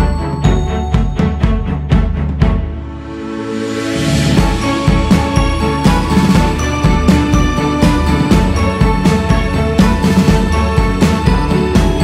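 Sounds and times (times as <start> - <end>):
held chord: 0.0 - 12.0
drum hit: 3.8 - 12.0.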